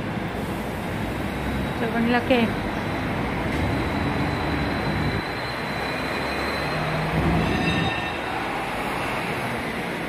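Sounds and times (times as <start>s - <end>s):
street traffic: 0.0s - 10.0s
vehicle high-pitched squeal: 3.5s - 9.6s.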